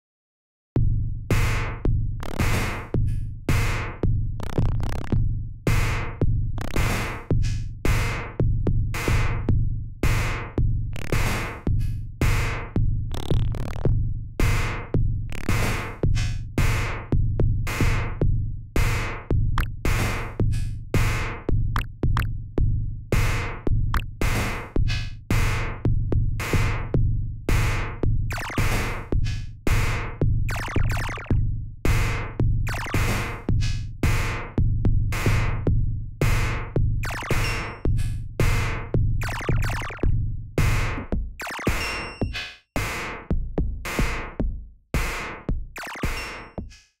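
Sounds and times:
glitchy electronic percussion hits: 0:21.8 - 0:22.3, 0:28.3 - 0:34.3, 0:36.2 - 0:43.2, 0:45.0 - 0:46.8.

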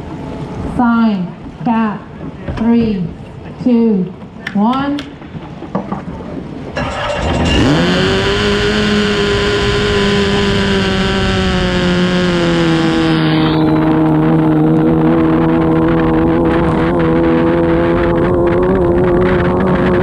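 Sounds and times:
race boat engine running hard: 0:05.0 - 0:20.0.

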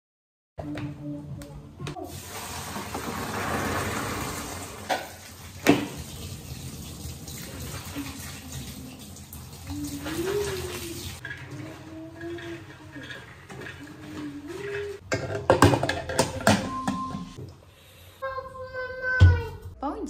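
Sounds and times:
water splashing through beans: 0:02.0 - 0:11.9
tap running into a sink: 0:04.8 - 0:07.5.

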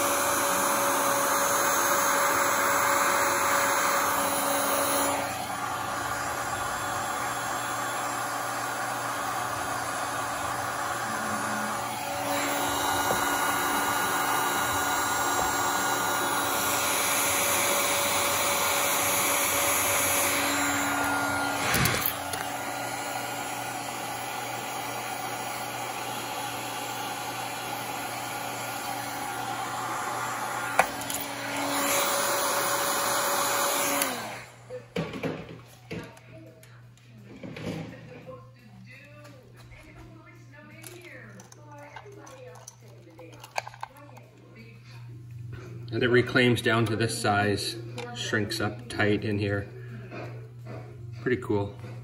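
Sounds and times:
heat gun blowing hot air: 0:00.0 - 0:34.6.

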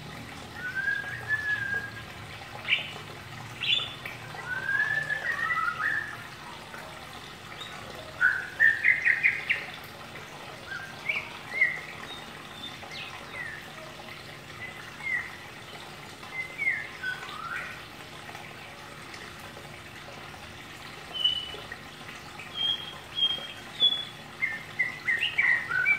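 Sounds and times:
bird chirps and whistles: 0:00.6 - 0:02.0, 0:03.6 - 0:06.2, 0:08.2 - 0:09.6, 0:21.1 - 0:21.6, 0:22.5 - 0:25.9.

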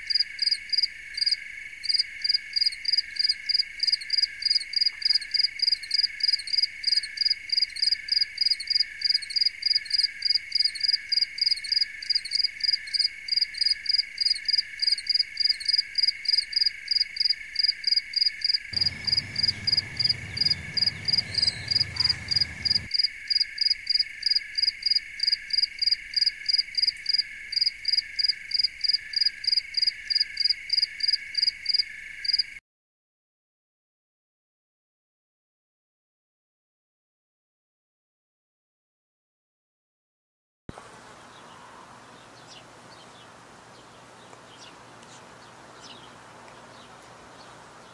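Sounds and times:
insects chirping rhythmically: 0:00.0 - 0:32.6
high insect drone: 0:00.1 - 0:32.5
low rumble: 0:18.8 - 0:22.9.

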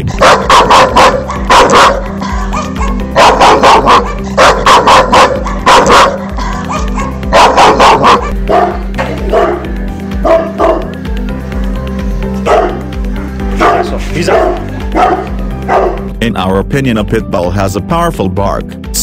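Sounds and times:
dog barking loudly: 0:00.2 - 0:11.0, 0:12.4 - 0:16.1.

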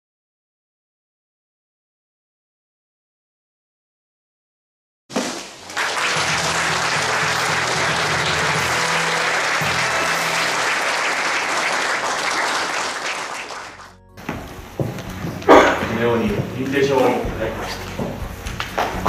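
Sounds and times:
audience applauding: 0:05.6 - 0:14.0
music playing: 0:05.7 - 0:19.0.

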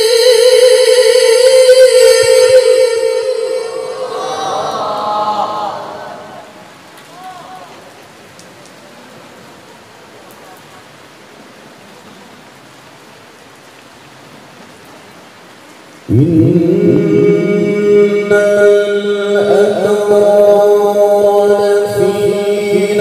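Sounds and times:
background hiss: 0:00.0 - 0:23.0
man reciting melodically: 0:16.1 - 0:23.0.

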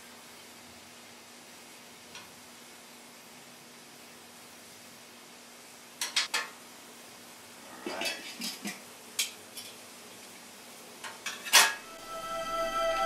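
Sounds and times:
metal lid clanking on griddle: 0:11.2 - 0:11.8.

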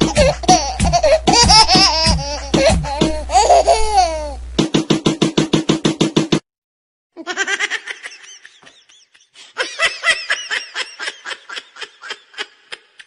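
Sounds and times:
high-pitched laughing: 0:00.0 - 0:04.4, 0:07.2 - 0:13.0.

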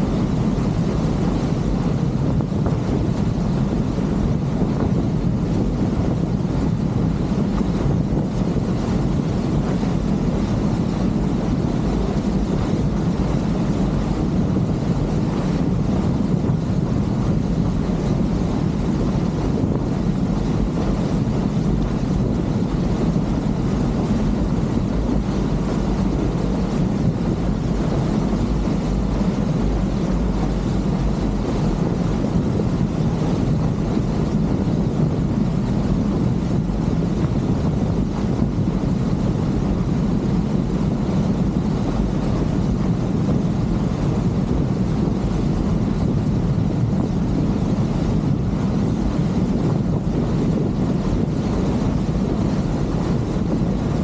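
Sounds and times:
motorboat engine drone: 0:00.0 - 0:54.0
wind buffeting microphone: 0:00.0 - 0:54.0.

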